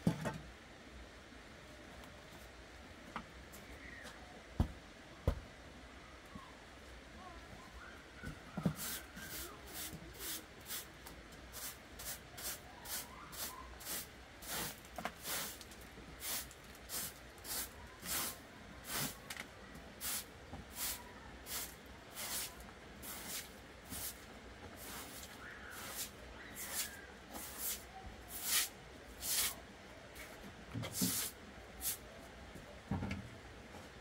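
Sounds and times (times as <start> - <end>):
broom sweeping wet concrete: 8.8 - 10.9, 11.5 - 19.2, 20.0 - 29.6, 30.2 - 32.0.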